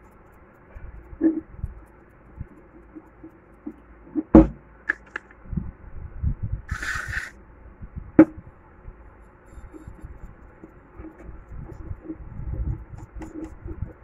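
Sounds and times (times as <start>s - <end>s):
scraping rustle: 6.7s - 7.3s.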